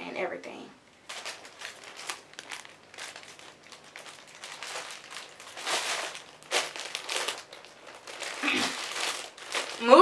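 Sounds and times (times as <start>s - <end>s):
plastic bag crinkling: 1.0s - 10.0s.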